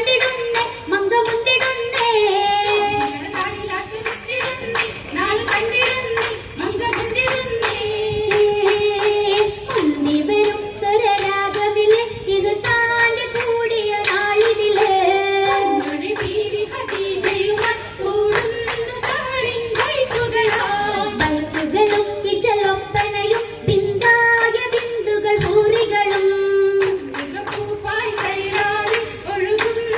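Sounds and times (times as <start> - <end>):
rhythmic hand clapping: 0.0 - 29.9
group singing: 14.1 - 21.8, 27.2 - 29.9.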